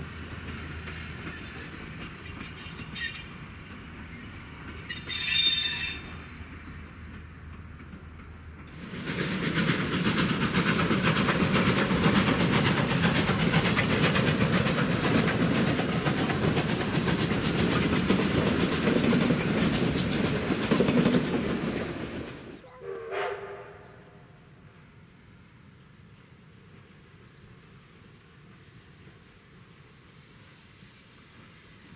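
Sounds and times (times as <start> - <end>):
train wheels clattering over rail joints: 0.0 - 22.6.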